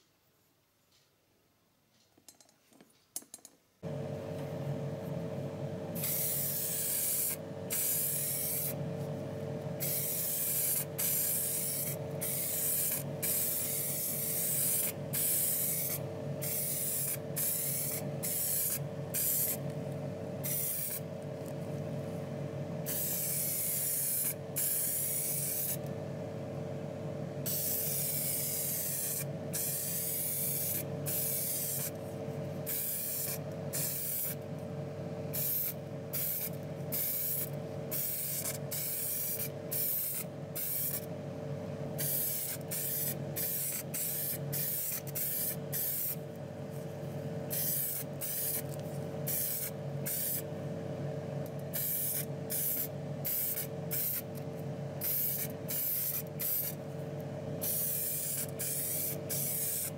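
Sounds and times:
steady low hum: 0:03.8 - 0:59.9
spray can hissing in bursts: 0:06.0 - 0:08.8, 0:09.8 - 0:19.6, 0:20.4 - 0:21.0, 0:22.9 - 0:25.8, 0:27.5 - 0:31.9, 0:32.7 - 0:34.4, 0:35.3 - 0:41.0, 0:42.0 - 0:46.2, 0:47.5 - 0:48.7, 0:49.3 - 0:50.4, 0:51.7 - 0:54.3, 0:55.0 - 0:56.8, 0:57.6 - 0:59.9.

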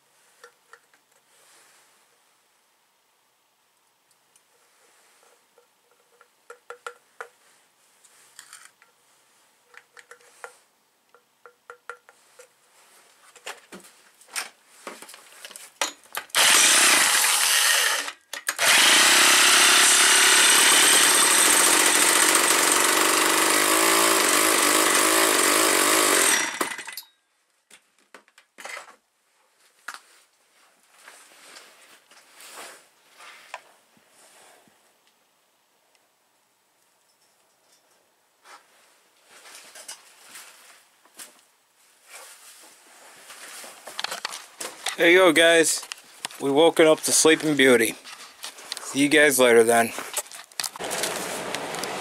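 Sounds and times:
chainsaw running: 0:16.3 - 0:27.0, 0:50.6 - 0:52.0.

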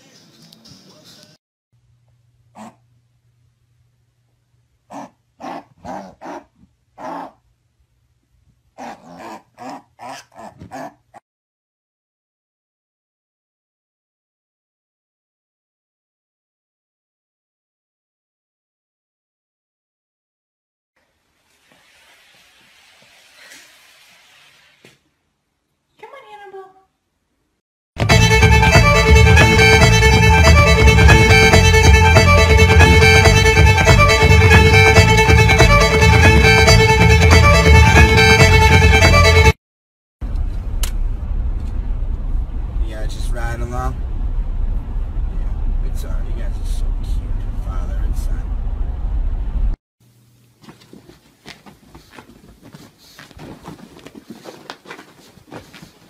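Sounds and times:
fiddle music: 0:28.0 - 0:39.6
small pet rustling on bedding: 0:50.6 - 0:56.0.

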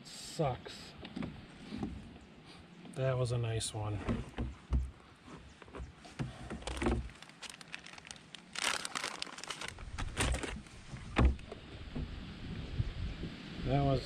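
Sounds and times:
gear rustling and clicking: 0:05.6 - 0:11.1.

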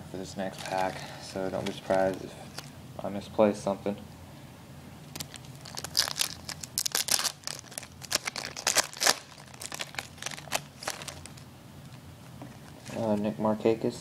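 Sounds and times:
foil wrapper tearing and crinkling: 0:05.1 - 0:11.4.

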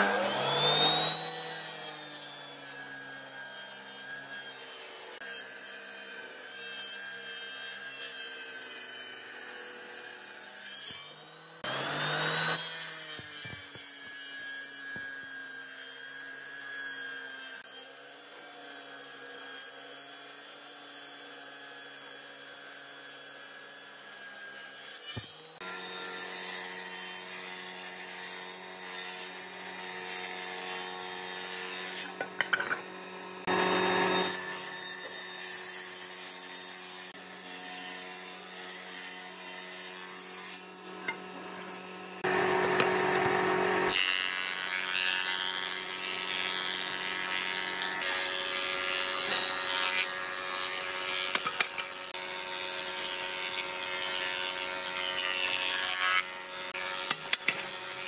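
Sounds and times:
table saw motor hum: 0:00.0 - 0:06.7, 0:08.2 - 0:18.6, 0:29.0 - 0:58.0
saw blade cutting wood: 0:00.0 - 0:58.0.

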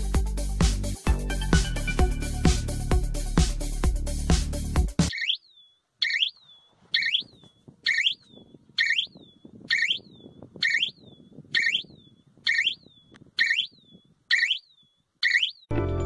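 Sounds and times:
electric fence electronic chirp: 0:05.1 - 0:15.7.

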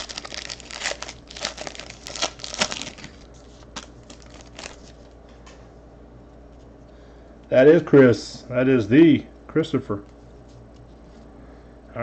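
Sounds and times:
foil wrappers crinkling: 0:00.0 - 0:05.1.

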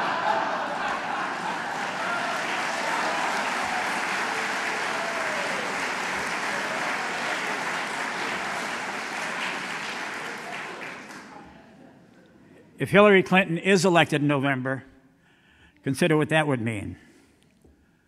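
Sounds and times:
audience applause: 0:00.0 - 0:11.6.

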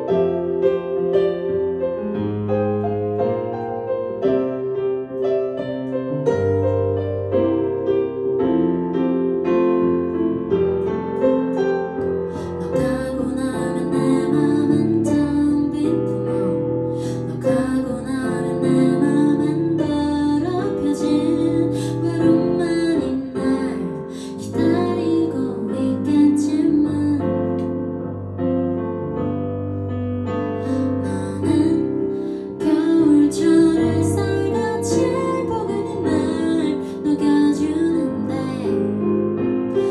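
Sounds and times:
digital piano: 0:00.0 - 0:39.9
woman singing a slow ballad: 0:12.3 - 0:27.8, 0:30.6 - 0:39.1.

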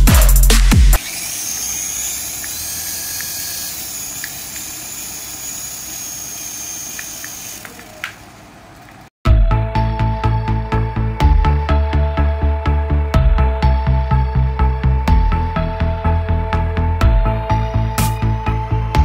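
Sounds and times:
electronic music: 0:00.0 - 0:01.0
small rotor motor whirring: 0:00.9 - 0:09.1
motor click: 0:01.0 - 0:09.1.

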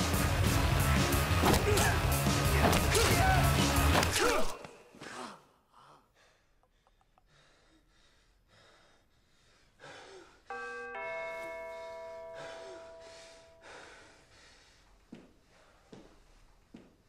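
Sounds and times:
man breathing heavily: 0:04.7 - 0:10.5, 0:11.8 - 0:16.4
two-note doorbell chime: 0:10.5 - 0:13.8.

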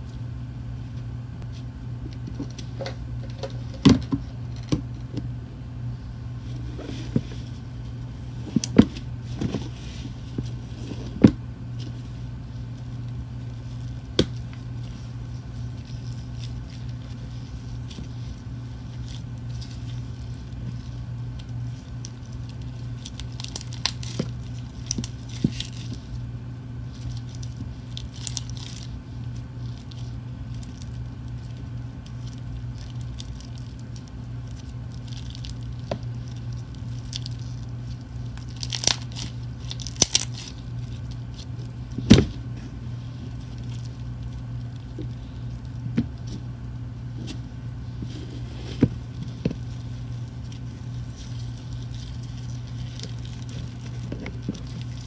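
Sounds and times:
steady low hum: 0:00.0 - 0:55.0
slime crackling and popping: 0:11.7 - 0:42.3, 0:49.0 - 0:55.0
foam beads rustling: 0:11.8 - 0:55.0.

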